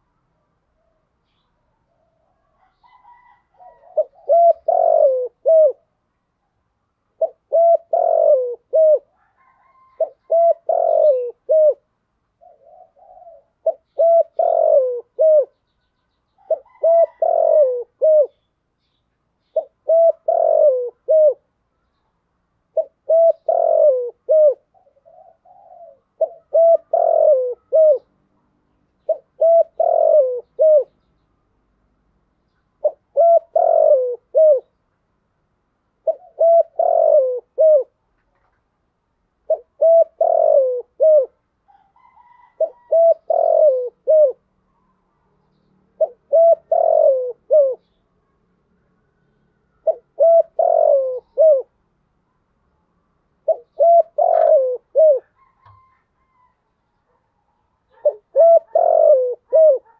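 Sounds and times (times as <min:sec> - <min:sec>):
dove cooing: 0:01.9 - 0:05.9, 0:07.2 - 0:15.7, 0:16.4 - 0:18.4, 0:19.6 - 0:21.5, 0:22.7 - 0:28.2, 0:29.0 - 0:31.0, 0:32.8 - 0:34.8, 0:36.0 - 0:38.0, 0:39.4 - 0:45.0, 0:45.9 - 0:48.0, 0:49.8 - 0:51.8, 0:53.4 - 0:59.9.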